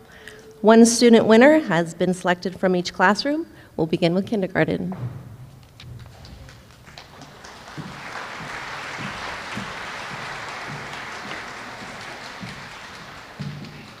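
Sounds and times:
soft low thumps: 4.8s - 6.5s
audience applauding: 6.0s - 14.0s.

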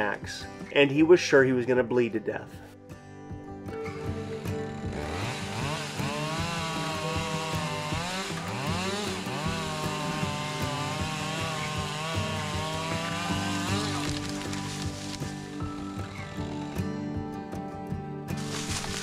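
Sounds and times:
chainsaw revving and cutting wood: 3.8s - 17.0s, 18.3s - 19.0s.

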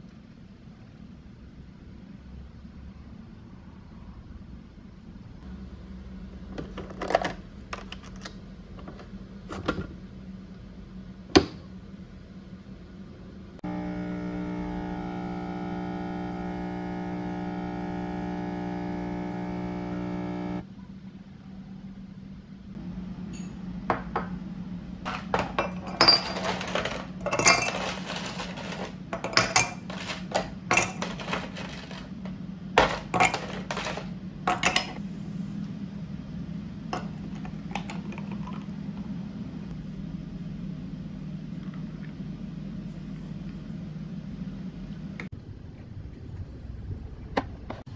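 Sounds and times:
espresso machine pump humming: 13.6s - 20.6s
ice cubes rattling in a glass: 25.1s - 32.1s, 32.8s - 34.8s.

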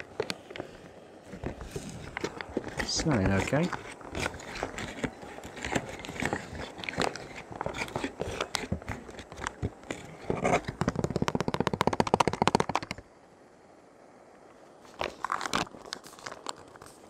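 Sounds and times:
foil pouch crinkling: 0.0s - 11.3s, 14.9s - 17.0s
spoon scraping and clicking: 2.0s - 10.7s.

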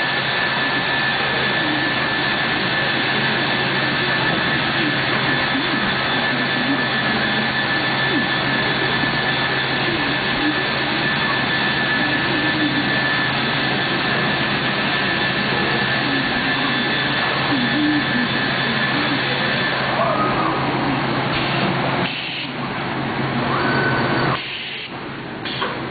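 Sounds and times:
machine with high whine: 0.0s - 25.9s.

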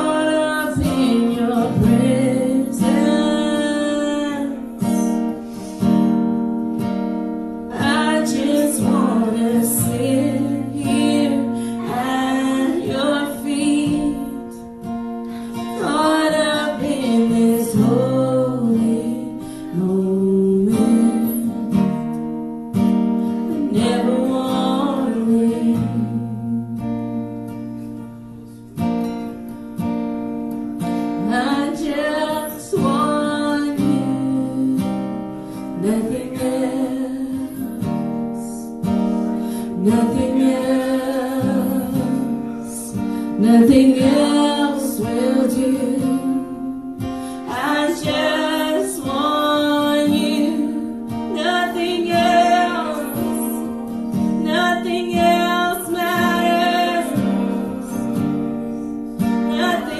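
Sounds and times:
person singing: 0.0s - 5.4s, 7.7s - 14.7s, 15.7s - 22.1s, 31.2s - 35.1s, 35.8s - 38.7s, 39.6s - 59.9s
acoustic guitar strumming: 0.0s - 59.9s.

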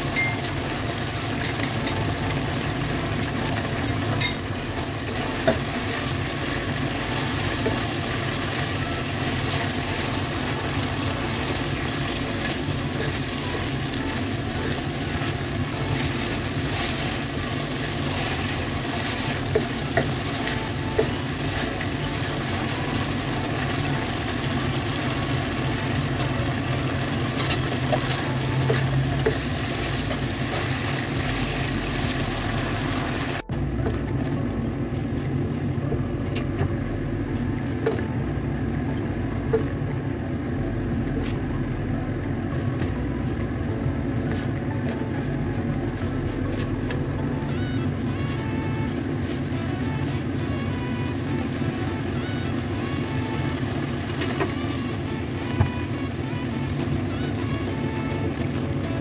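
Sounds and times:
pork sizzling in a wok: 0.0s - 34.1s, 46.3s - 59.0s.

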